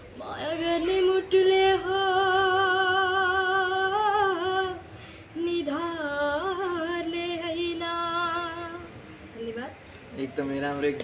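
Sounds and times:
boy singing unaccompanied: 0:00.0 - 0:09.8
breath: 0:04.9 - 0:05.4.

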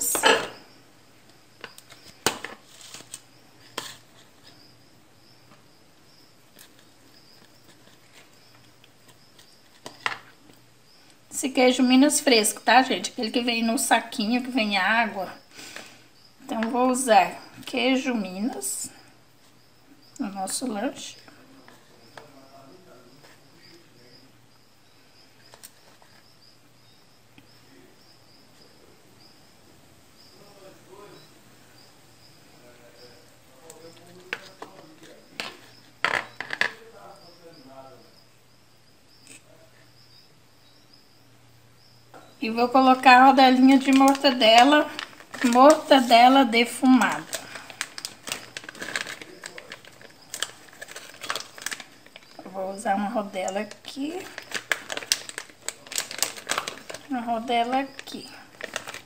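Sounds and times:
faint room hiss: 0:00.0 - 0:59.0
faint high chirping: 0:19.6 - 0:42.6.

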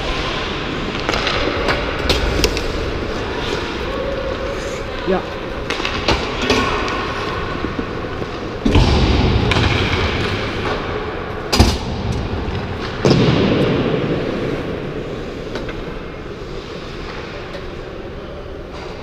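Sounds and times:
ice skates scraping: 0:00.0 - 0:08.7, 0:14.2 - 0:19.0.

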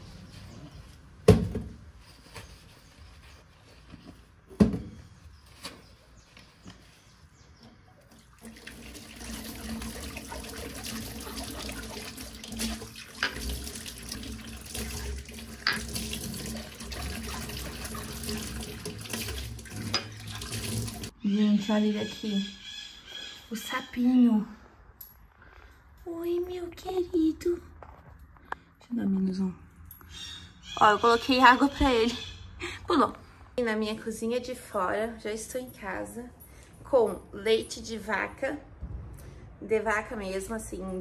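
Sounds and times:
tap water running: 0:08.0 - 0:21.1.

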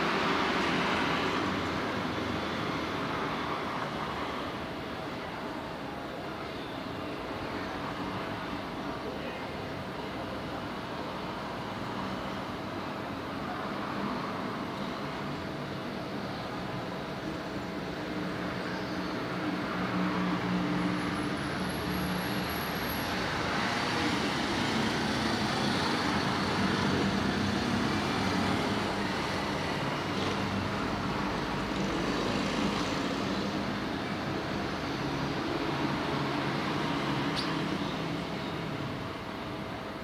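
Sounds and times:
city street traffic: 0:00.0 - 0:40.0.

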